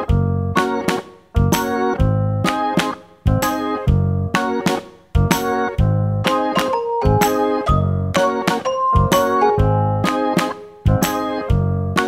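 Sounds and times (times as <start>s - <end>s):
keyboard tune with steady beat: 0.0s - 12.0s
low bass notes: 0.1s - 0.6s, 1.4s - 2.5s, 3.3s - 4.4s, 5.2s - 6.3s, 7.0s - 8.2s, 8.9s - 10.1s, 10.9s - 12.0s.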